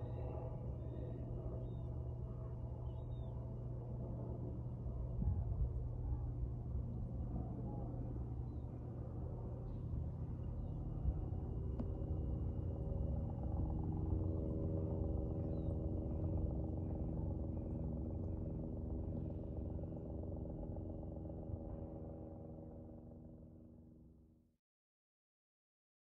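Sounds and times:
steady engine drone: 0:00.0 - 0:24.5.

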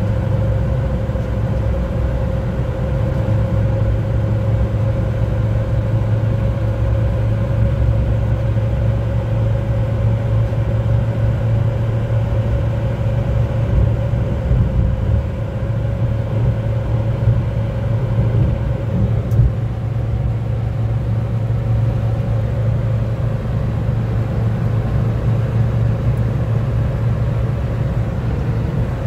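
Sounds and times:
engine and road noise drone: 0:00.0 - 0:29.0.

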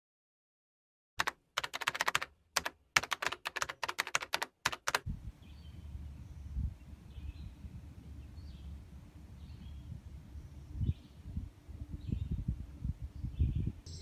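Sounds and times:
keyboard typing: 0:01.2 - 0:05.1
low outdoor rumble: 0:05.1 - 0:14.0
faint bird chirps: 0:13.1 - 0:14.0.

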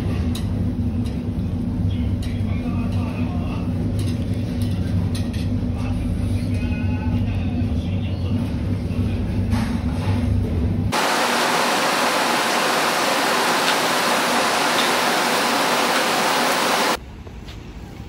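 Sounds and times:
loud even hiss: 0:11.0 - 0:17.0.

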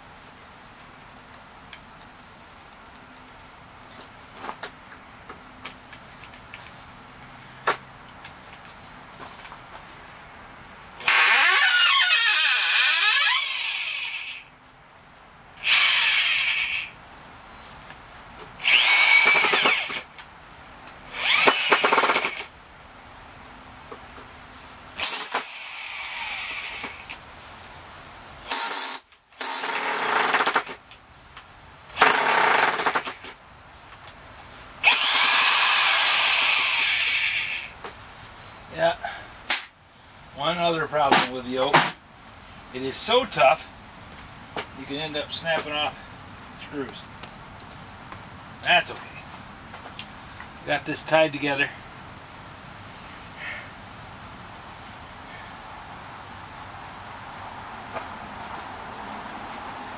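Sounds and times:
electric drill boring into wood: 0:11.0 - 0:14.4, 0:15.6 - 0:16.9, 0:18.6 - 0:20.0, 0:21.1 - 0:22.5, 0:25.0 - 0:27.2, 0:28.5 - 0:30.8, 0:32.0 - 0:33.2, 0:34.8 - 0:37.7.

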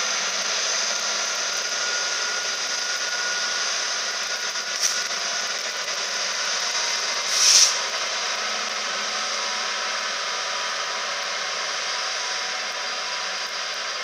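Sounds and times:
freight train wheels on rail: 0:00.0 - 0:14.0
high-pitched noise bursts: 0:04.7 - 0:05.2, 0:07.2 - 0:07.9.

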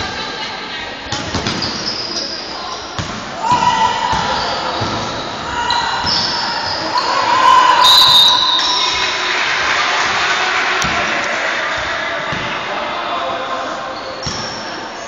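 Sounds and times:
shoe squeaks on wooden court: 0:01.4 - 0:03.0, 0:14.0 - 0:14.7.

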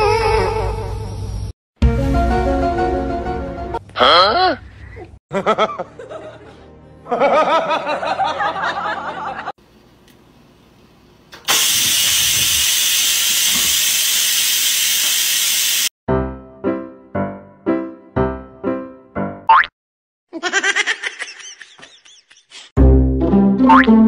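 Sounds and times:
rice cooker venting steam hiss: 0:11.4 - 0:15.9.

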